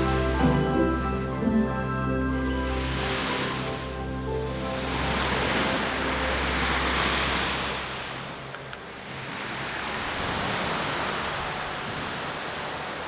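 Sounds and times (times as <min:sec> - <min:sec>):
background music: 0:00.0 - 0:07.9
ocean surf washing ashore: 0:00.0 - 0:13.0.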